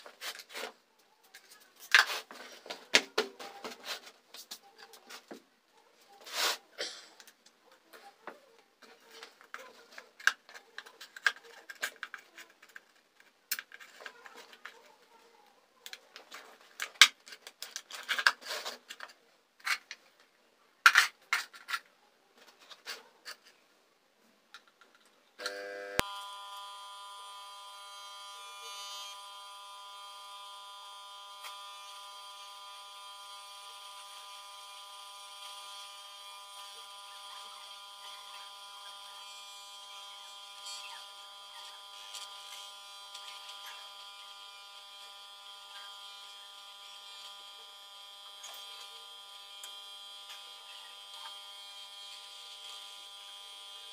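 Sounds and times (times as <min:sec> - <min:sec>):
electric air pump buzzing: 0:25.4 - 0:53.9.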